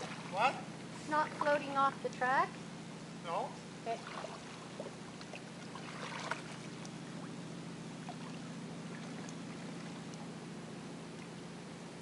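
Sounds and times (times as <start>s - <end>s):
paddle splashing water: 0.0s - 0.4s, 3.9s - 7.4s
steady low hum: 0.0s - 12.0s.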